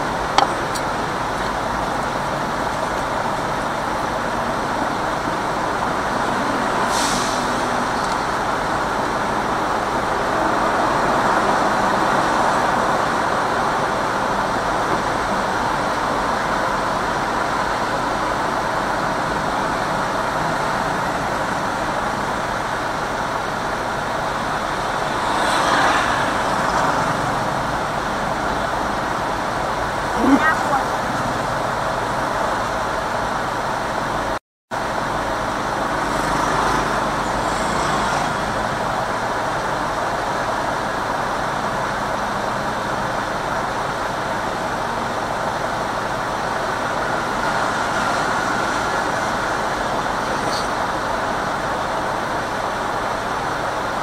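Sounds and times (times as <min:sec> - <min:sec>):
road and traffic noise inside car: 0:00.0 - 0:54.0
brief hisses: 0:06.9 - 0:07.7.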